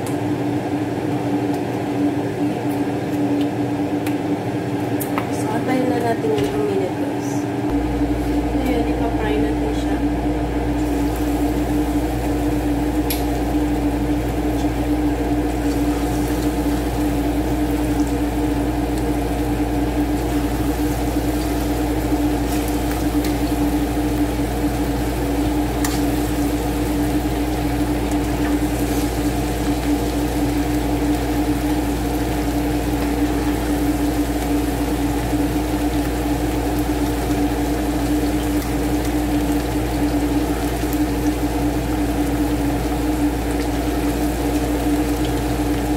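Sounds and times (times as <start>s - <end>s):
steady low hum: 0.0s - 45.9s
oil bubbling and sizzling: 10.0s - 45.9s.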